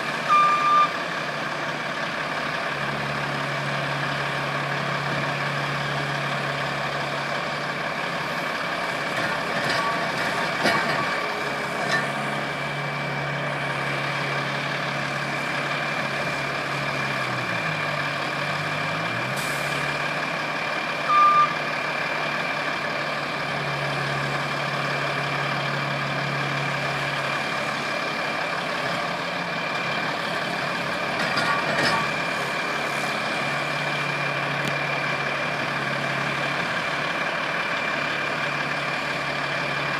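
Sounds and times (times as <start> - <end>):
loader and truck engines running: 0.0 - 39.9
short loud beep: 0.3 - 1.0, 21.1 - 21.6.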